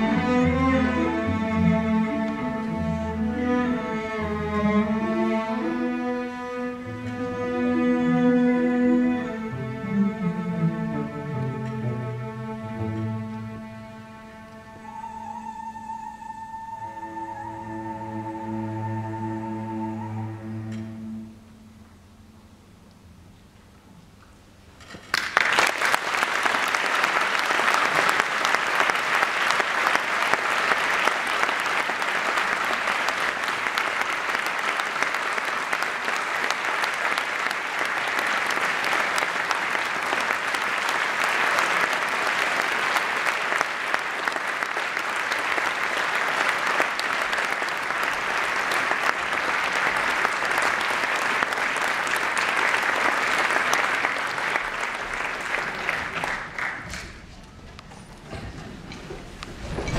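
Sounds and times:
audience applause: 0:25.1 - 0:57.2.

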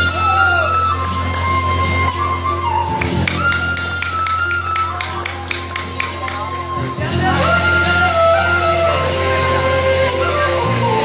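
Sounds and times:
melody of long held notes: 0:00.0 - 0:11.0.

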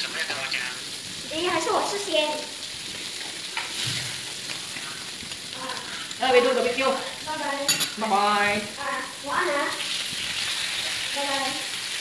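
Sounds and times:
food sizzling on a grill plate: 0:00.0 - 0:12.0
chopsticks stirring food: 0:02.8 - 0:08.5.

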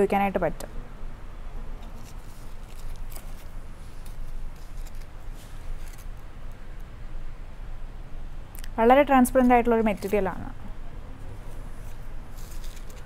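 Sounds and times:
steady low hum: 0:00.0 - 0:13.0
fabric rustling: 0:01.8 - 0:06.3, 0:11.4 - 0:13.0.

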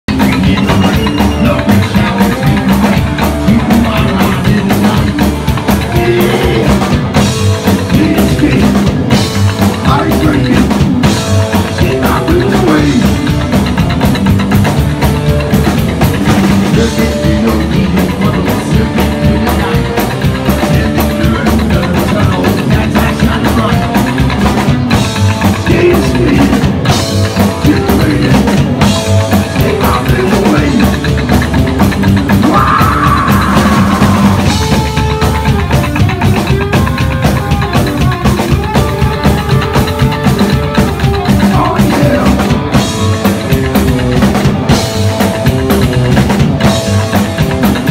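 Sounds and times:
drum kit: 0:00.0 - 0:47.9
electric guitar: 0:00.0 - 0:47.9
person singing: 0:00.1 - 0:10.9, 0:11.6 - 0:13.4, 0:16.6 - 0:24.4, 0:25.6 - 0:31.3, 0:32.3 - 0:35.6, 0:36.8 - 0:43.1
upright double bass: 0:00.1 - 0:47.9.

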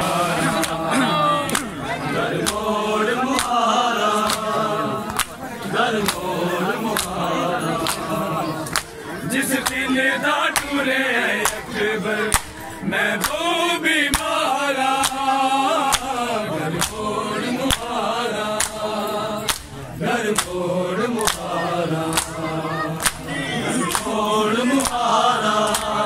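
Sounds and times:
men chanting: 0:00.0 - 0:26.0
hands slapping chests: 0:00.5 - 0:01.8, 0:02.4 - 0:02.7, 0:03.4 - 0:03.6, 0:04.2 - 0:04.5, 0:05.1 - 0:05.4, 0:06.0 - 0:06.3, 0:06.9 - 0:07.2, 0:10.5 - 0:10.8, 0:11.4 - 0:11.7, 0:12.3 - 0:12.6, 0:13.2 - 0:13.4, 0:15.0 - 0:16.1, 0:18.6 - 0:20.6, 0:21.2 - 0:21.5, 0:22.1 - 0:22.4, 0:23.0 - 0:24.2, 0:24.8 - 0:25.0, 0:25.6 - 0:26.0.

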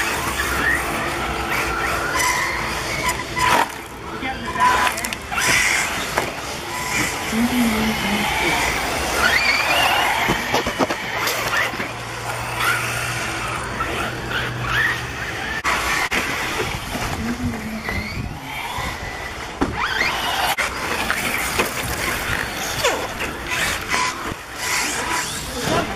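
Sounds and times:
rc car motors whining: 0:00.0 - 0:25.9.

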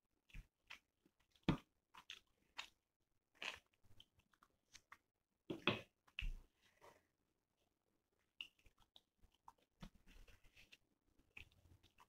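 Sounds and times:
wet chewing and mouth smacks: 0:00.3 - 0:05.1, 0:08.2 - 0:10.4.

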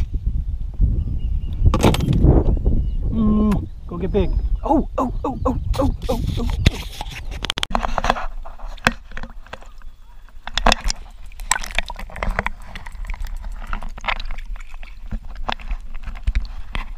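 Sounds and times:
underwater sloshing and gurgling: 0:07.9 - 0:16.9
underwater knocks and clicks: 0:10.4 - 0:16.9.

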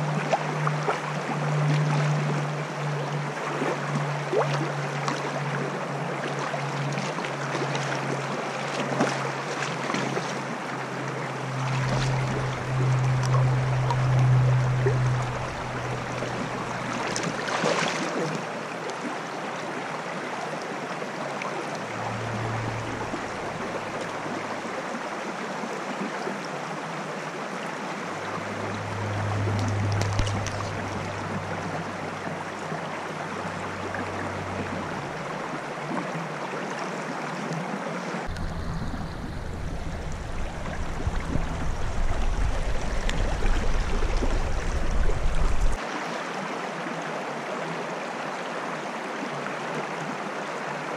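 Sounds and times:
stream rushing over rocks: 0:00.0 - 0:50.9
splash in water: 0:06.2 - 0:10.6, 0:14.8 - 0:19.0, 0:29.0 - 0:31.5.

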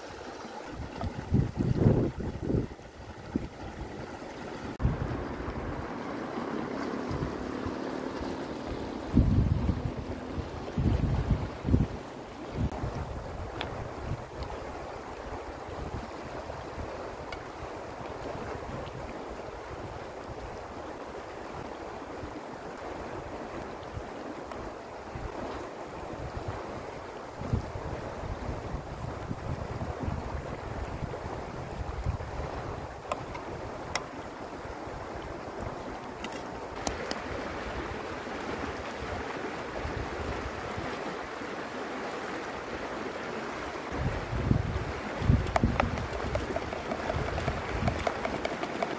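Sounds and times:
river flowing: 0:00.0 - 0:48.9
wind buffeting microphone: 0:00.7 - 0:20.8, 0:25.1 - 0:36.0, 0:43.9 - 0:48.9.

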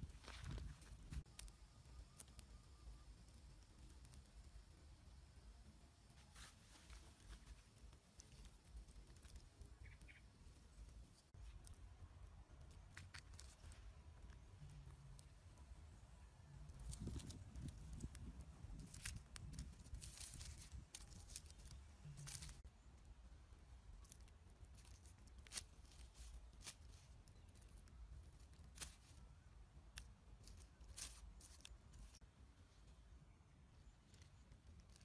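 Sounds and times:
leaves crackling and tearing: 0:12.6 - 0:14.0, 0:16.6 - 0:22.6, 0:24.0 - 0:29.3, 0:29.9 - 0:32.2, 0:34.0 - 0:35.0.

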